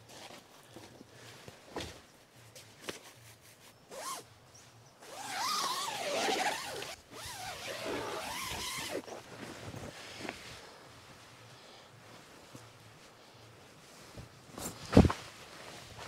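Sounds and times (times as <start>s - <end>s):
tent door zipper pulled: 3.9s - 4.2s, 5.0s - 9.3s.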